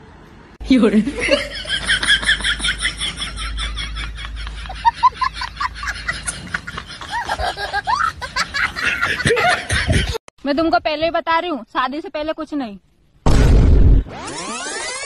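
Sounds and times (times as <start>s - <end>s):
squeaky rising notes: 14.0s - 15.0s.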